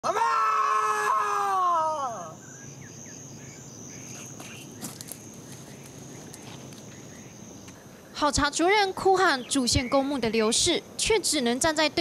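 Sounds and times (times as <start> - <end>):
man shouting: 0.0 - 2.4
insect drone: 0.0 - 12.0
faint bird chirps: 1.8 - 10.4.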